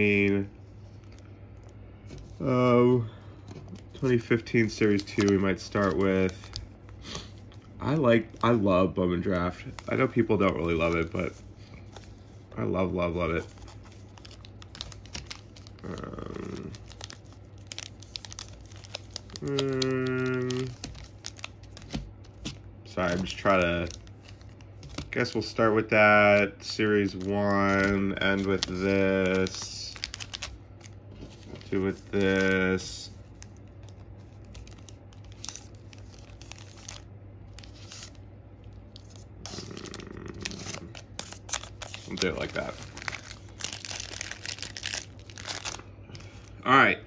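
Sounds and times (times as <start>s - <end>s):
foil packs crinkling: 0.0s - 46.9s
faint low hum: 0.0s - 47.0s
man humming: 19.4s - 20.7s, 39.5s - 40.9s.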